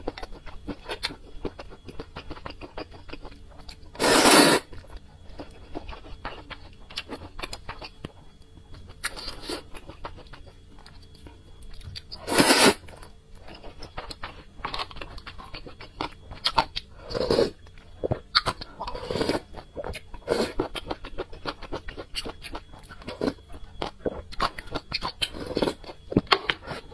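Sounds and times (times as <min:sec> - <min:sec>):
noodle slurping: 0:04.0 - 0:04.7, 0:12.2 - 0:12.8
soft chewing clicks: 0:04.7 - 0:12.2.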